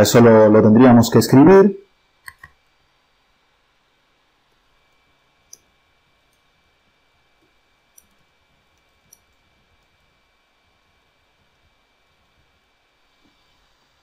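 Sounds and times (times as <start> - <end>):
faint steady hiss: 0.0 - 14.0.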